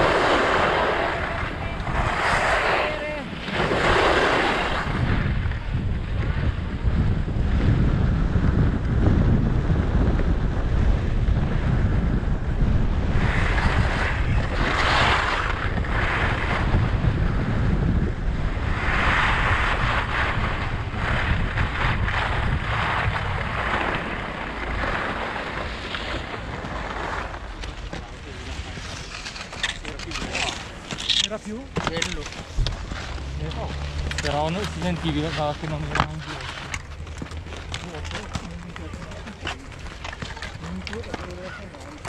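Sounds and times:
skis scraping on snow: 0.0s - 5.3s, 13.2s - 16.7s, 18.7s - 42.0s
wind buffeting microphone: 0.0s - 42.0s.

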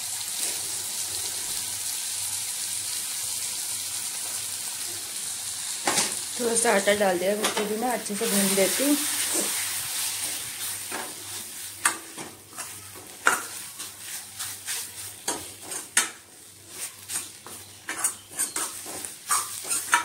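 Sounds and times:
soft sizzle: 0.0s - 20.0s
ladle stirring and scraping: 7.5s - 20.0s.

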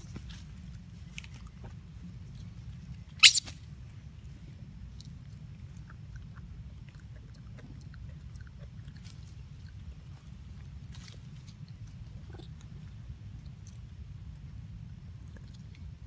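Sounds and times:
baby monkey squealing: 3.2s - 3.6s.

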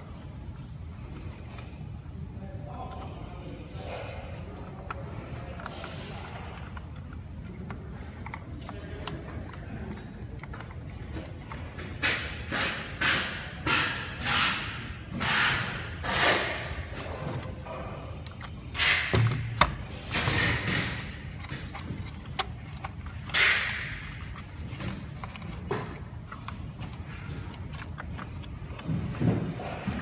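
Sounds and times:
plastic scraping and rustling: 2.6s - 30.0s.

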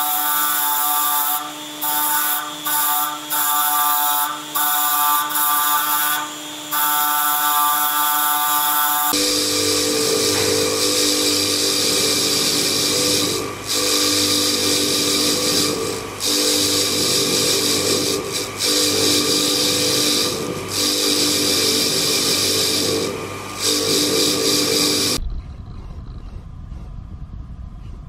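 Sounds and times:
motor hum: 0.0s - 25.5s
wire wheel scrubbing metal grille: 9.2s - 25.2s.

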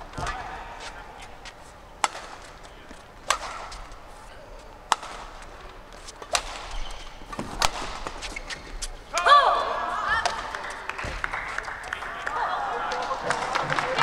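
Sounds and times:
racket striking shuttlecock: 0.0s - 4.1s, 4.7s - 9.4s
low hall murmur: 0.0s - 14.0s.

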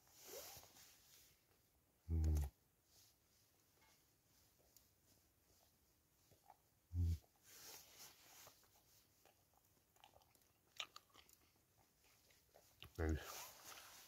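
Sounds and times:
person humming: 2.1s - 2.5s
person chewing: 8.4s - 14.0s.

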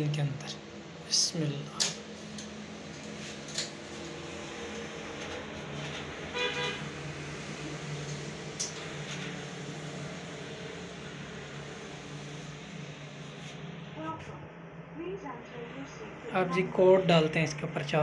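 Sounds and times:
steady low hum: 0.0s - 18.0s
buzzy horn-like toot: 6.3s - 7.0s.

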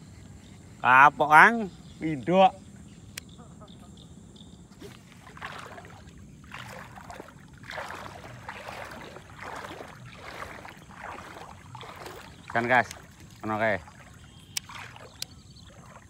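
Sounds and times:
lure splashing through water: 4.8s - 16.0s.

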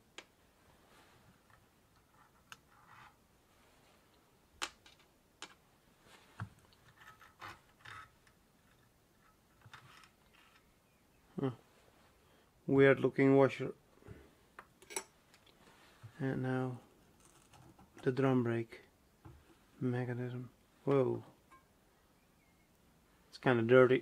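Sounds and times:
small metallic clicks and clinks: 14.8s - 15.6s.

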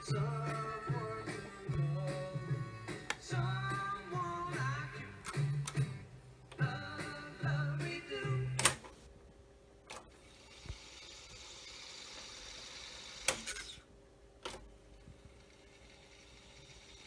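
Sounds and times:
tape deck lever clicks: 8.6s - 8.9s
hiss of reels fast-winding tape: 10.1s - 13.9s, 15.0s - 17.0s.

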